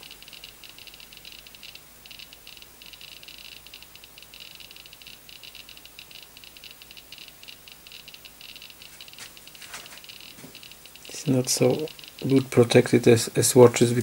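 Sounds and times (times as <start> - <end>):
geiger counter clicking: 0.0 - 14.0
faint handling rustle: 8.8 - 10.6.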